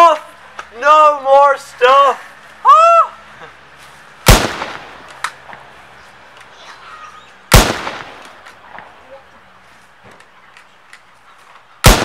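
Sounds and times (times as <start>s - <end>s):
handgun shots echoing: 7.5s - 8.3s.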